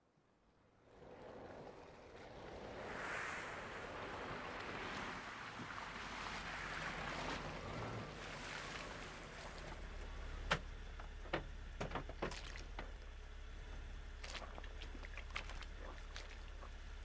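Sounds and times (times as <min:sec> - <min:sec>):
car rolling over wet ground: 0:00.6 - 0:17.0
low steady hum: 0:06.2 - 0:17.0.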